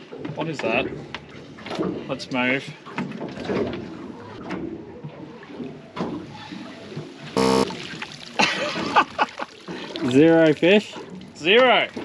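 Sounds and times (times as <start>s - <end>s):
short loud buzz: 7.4s - 7.7s.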